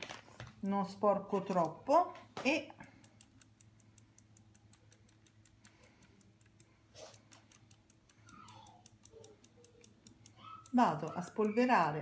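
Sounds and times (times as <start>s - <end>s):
fast even ticking: 2.7s - 12.0s.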